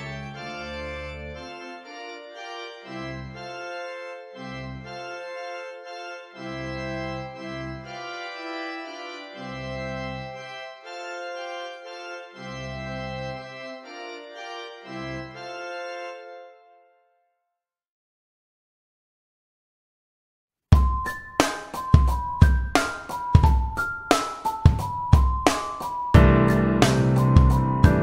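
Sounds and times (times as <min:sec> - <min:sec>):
keyboard chords: 0:00.0 - 0:17.3, 0:20.7 - 0:28.0
low bass notes: 0:26.2 - 0:28.0.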